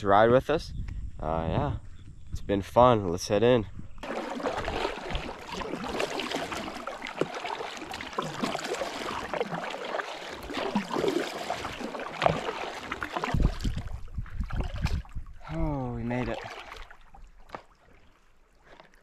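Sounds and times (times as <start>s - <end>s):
water dripping: 4.0s - 13.9s
paddle splashing water: 4.0s - 19.0s.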